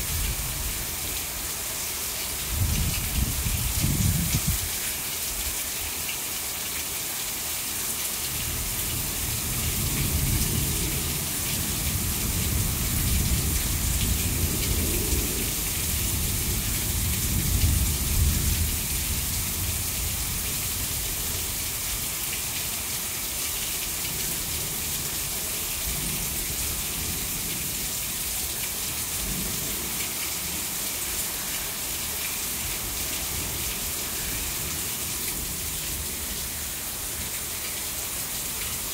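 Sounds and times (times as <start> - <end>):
heavy rain pouring: 0.0 - 38.9
water streaming off roof: 0.0 - 38.9
low rumble of thunder: 2.6 - 4.6, 9.2 - 20.4.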